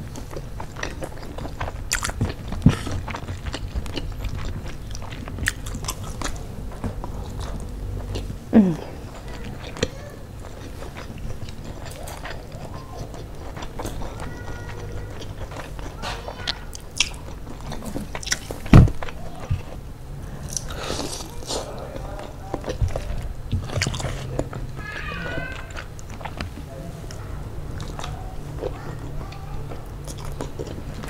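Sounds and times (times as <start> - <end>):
person chewing food: 0.0 - 31.0
person humming: 8.5 - 9.0.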